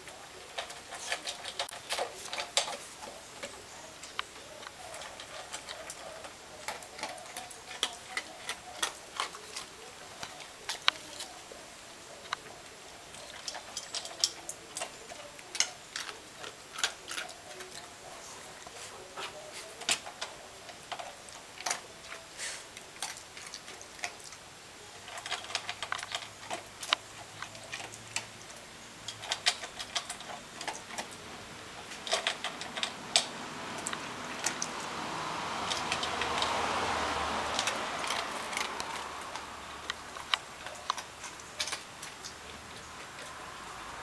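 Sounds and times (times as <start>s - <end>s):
puppy claws on plastic: 0.0s - 11.4s, 25.0s - 28.4s, 29.1s - 44.0s.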